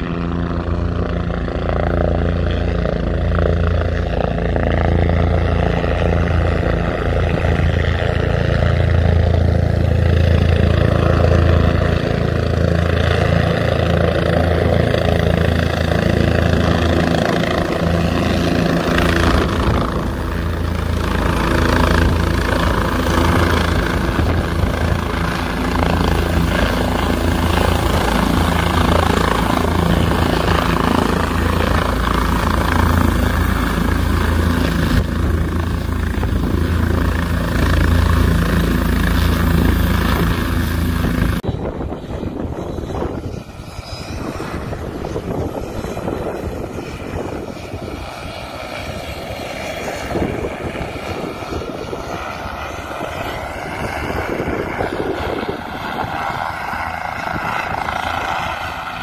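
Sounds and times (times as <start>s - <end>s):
helicopter rotor and engine: 0.0s - 59.0s.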